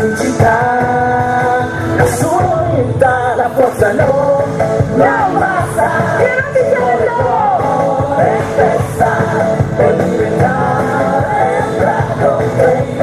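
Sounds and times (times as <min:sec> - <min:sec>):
song with band accompaniment: 0:00.0 - 0:13.0.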